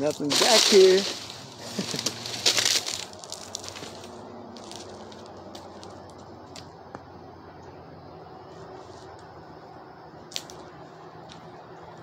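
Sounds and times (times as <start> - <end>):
footsteps crunching on dry leaves: 0.0 - 6.6.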